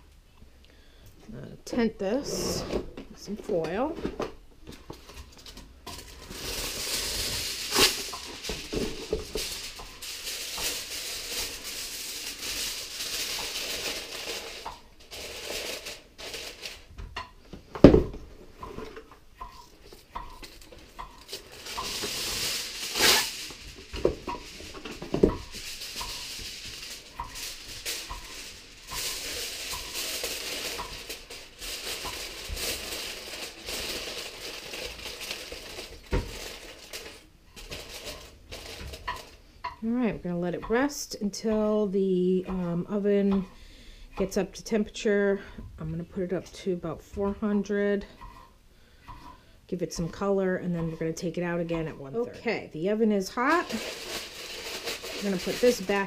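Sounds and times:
aluminium foil tearing and crinkling: 5.2s - 16.9s, 20.3s - 39.4s, 53.4s - 56.0s.

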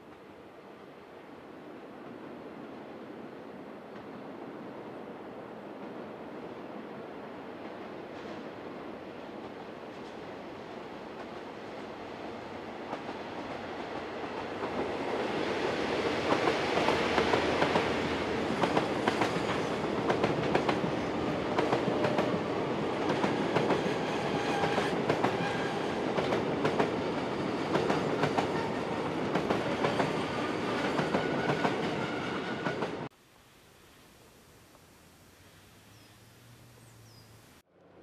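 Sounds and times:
freight train wheels clacking on rails: 12.9s - 33.1s.

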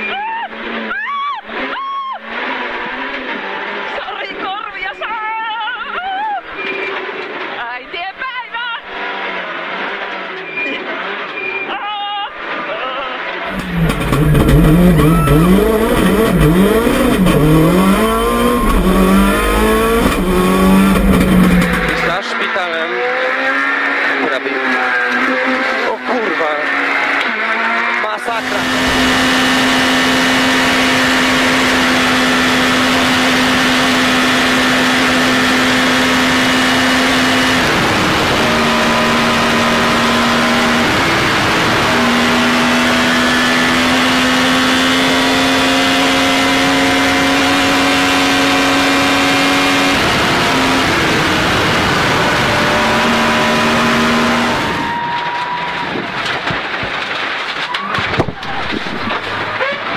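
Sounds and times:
race car engine at high revs: 0.0s - 4.9s, 8.8s - 11.7s, 12.4s - 57.3s, 58.2s - 59.9s
car engine inside closed cabin: 13.3s - 57.3s.

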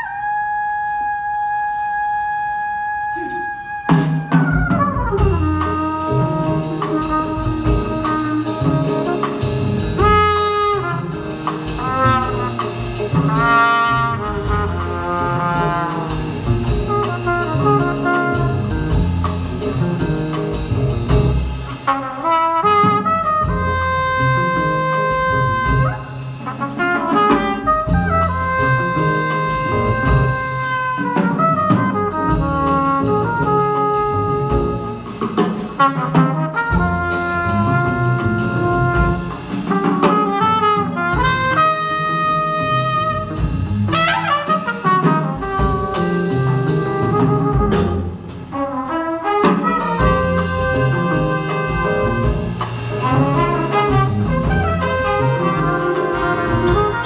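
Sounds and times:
jazz big band playing: 0.0s - 57.0s.

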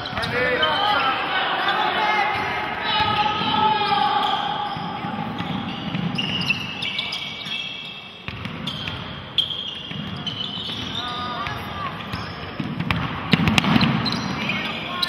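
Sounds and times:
sneakers squeaking on gym floor: 0.0s - 15.0s
basketball bouncing: 8.2s - 9.1s, 9.9s - 14.2s.

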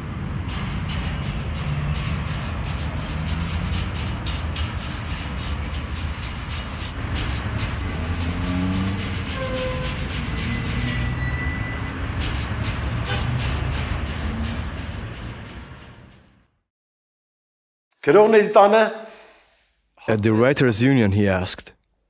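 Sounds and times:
city street traffic rumble: 0.0s - 16.5s
cloth rubbing on stone: 1.0s - 11.2s.

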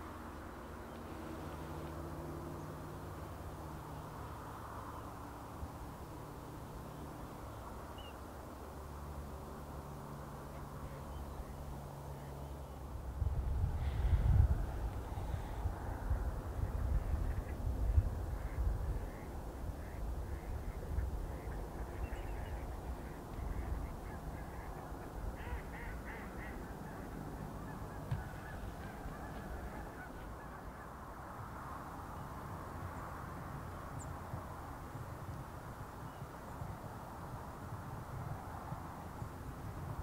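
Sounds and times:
geese honking: 21.4s - 30.9s.

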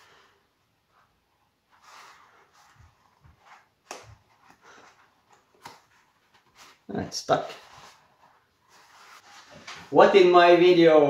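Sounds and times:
paper rustling: 1.6s - 10.3s.

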